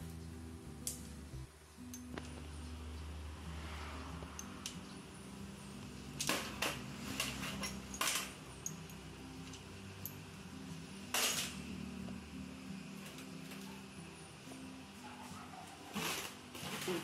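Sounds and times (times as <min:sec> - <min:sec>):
metal parts clinking: 0:06.2 - 0:10.3, 0:11.1 - 0:11.7.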